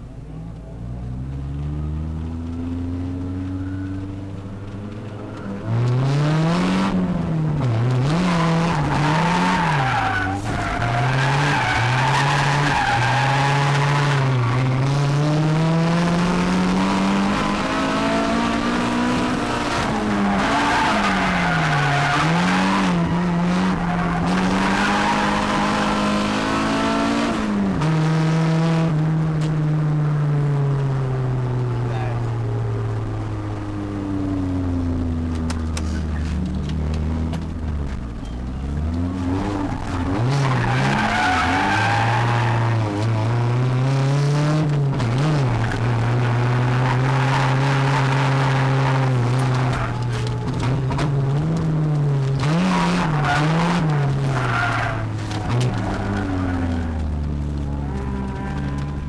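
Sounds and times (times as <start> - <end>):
car engine revving: 0.0 - 59.0
tyres squealing: 39.7 - 42.9.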